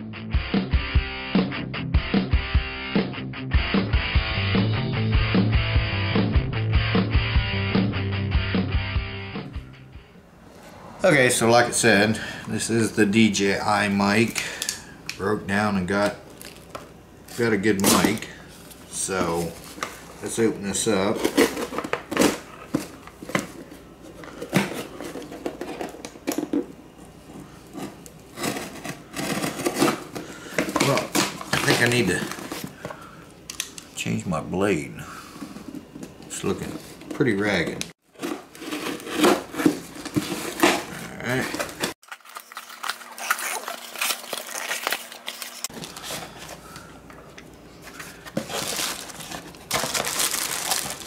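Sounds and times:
cardboard and plastic rustling: 16.0 - 33.1, 35.4 - 51.0
knife slicing packing tape: 42.3 - 45.7.

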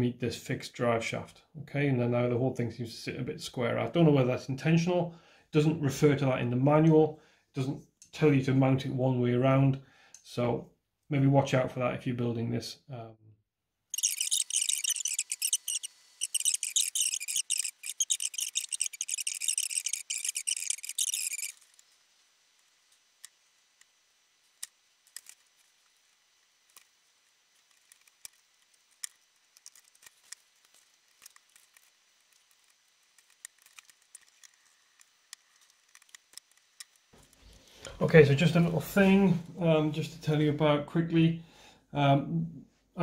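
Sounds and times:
small parts and tools clicking: 13.9 - 22.0, 22.6 - 37.6
high-pitched rasping chatter: 14.0 - 21.6.

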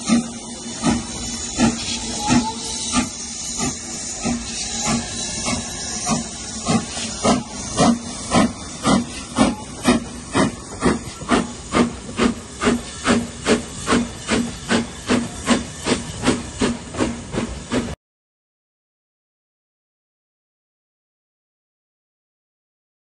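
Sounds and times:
steam locomotive exhaust chuffing: 0.0 - 18.0.

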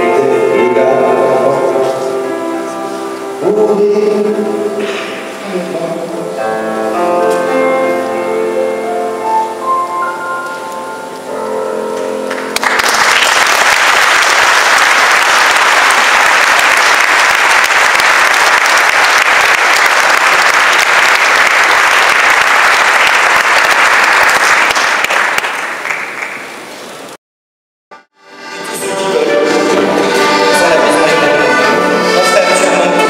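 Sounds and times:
grand piano notes ringing: 0.0 - 12.8, 28.2 - 33.0
audience applauding: 12.3 - 26.7.

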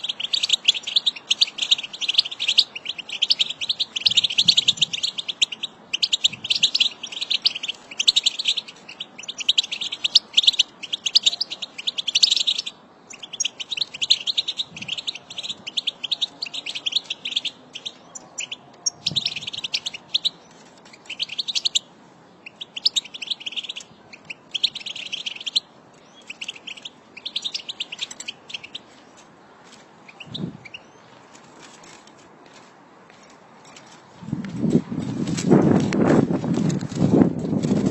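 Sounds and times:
goldfinch twittering: 22.4 - 28.8.

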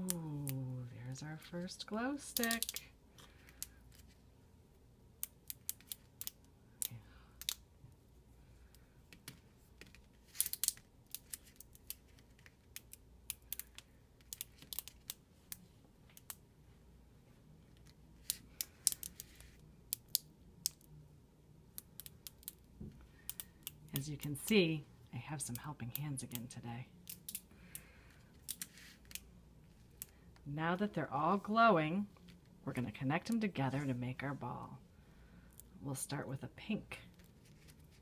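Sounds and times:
glow sticks cracking: 2.3 - 4.0, 5.2 - 7.6, 10.3 - 16.4, 17.7 - 20.9, 27.0 - 30.4.

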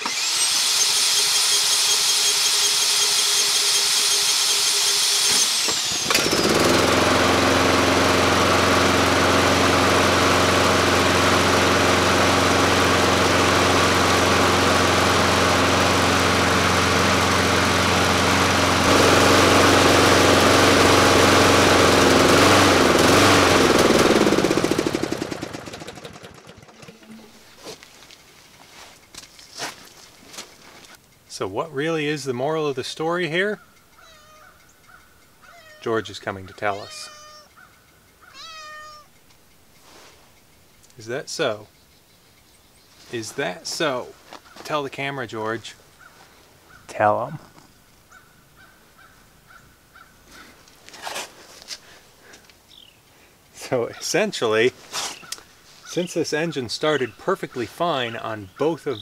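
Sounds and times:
cordless drill whining: 0.0 - 9.2
lawnmower engine running: 0.0 - 31.0, 53.6 - 59.0.

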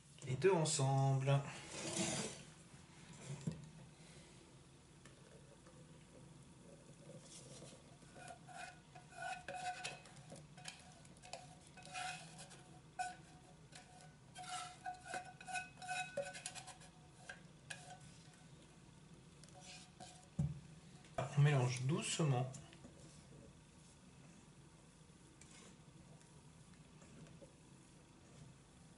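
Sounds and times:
spatula scraping: 1.6 - 2.5, 7.2 - 18.4, 19.4 - 20.4.

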